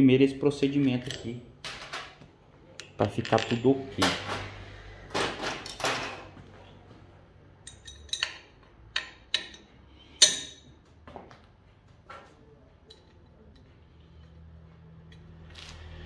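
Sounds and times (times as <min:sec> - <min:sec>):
metal parts and tools clinking: 0:00.7 - 0:04.5, 0:07.6 - 0:10.8, 0:12.8 - 0:14.4.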